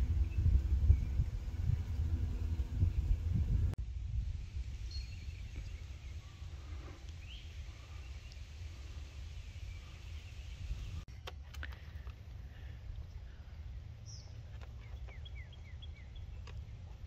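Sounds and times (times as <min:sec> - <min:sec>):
steady low rumble: 0:00.0 - 0:11.1
faint bird chirps: 0:04.8 - 0:11.1.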